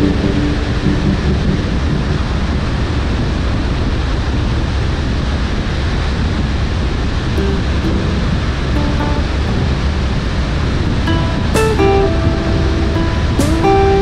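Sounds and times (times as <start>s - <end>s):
heavy low rumble: 0.0s - 4.8s, 6.8s - 14.0s.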